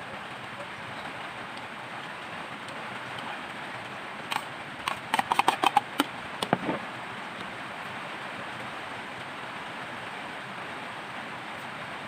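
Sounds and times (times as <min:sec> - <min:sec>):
steady hissing noise: 0:00.0 - 0:12.0
plastic bowl clicks and knocks: 0:04.9 - 0:06.8.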